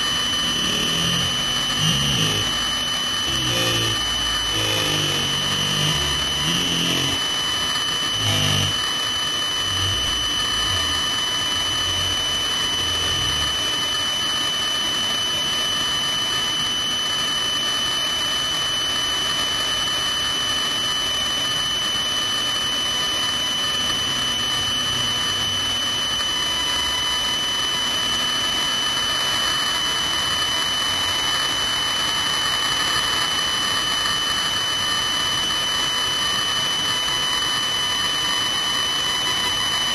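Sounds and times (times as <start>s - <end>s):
helicopter turbine whine: 0.0s - 14.8s.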